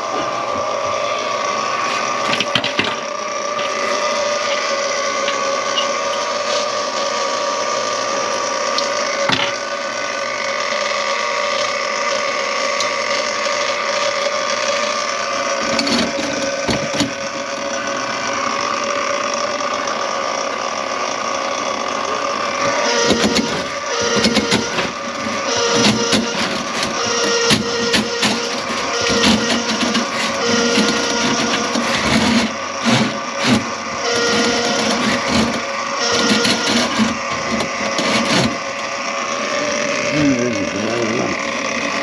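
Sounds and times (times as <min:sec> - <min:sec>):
drain-cleaning machine motor whine: 0:00.0 - 0:42.0
cable knocking and rattling: 0:23.0 - 0:38.6.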